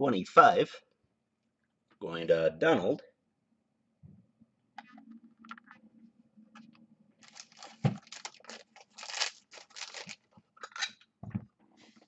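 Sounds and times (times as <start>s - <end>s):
plastic packaging crinkling: 7.2s - 10.4s.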